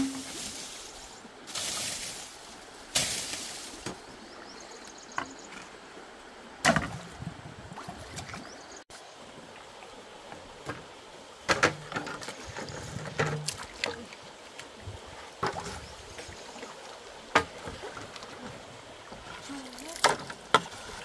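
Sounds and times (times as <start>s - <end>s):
steady background hiss: 0.0s - 7.2s.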